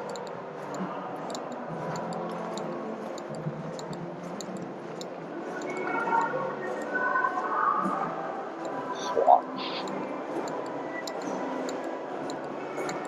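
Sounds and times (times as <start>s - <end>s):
faint background music: 0.0s - 13.0s
mixed tones ambience: 5.3s - 13.0s.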